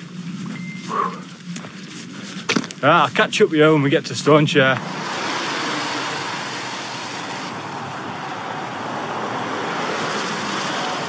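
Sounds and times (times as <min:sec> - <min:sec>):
traffic on a wet road: 0:04.2 - 0:11.0.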